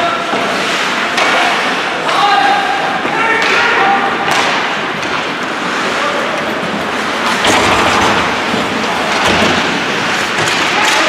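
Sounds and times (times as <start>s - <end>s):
crowd cheering and shouting: 1.2s - 11.0s
sharp knocks: 3.1s - 5.5s, 7.1s - 10.8s.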